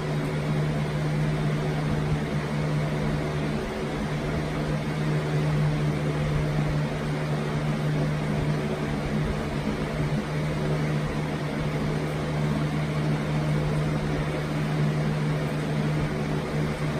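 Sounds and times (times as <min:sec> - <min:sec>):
mechanical hum: 0:00.0 - 0:16.9.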